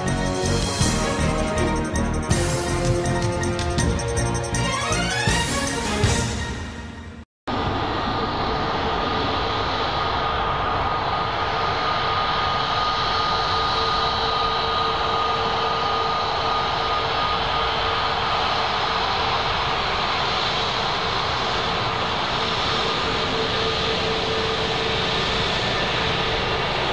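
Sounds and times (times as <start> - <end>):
jet engines at taxi power: 0.0 - 6.6, 7.5 - 26.9.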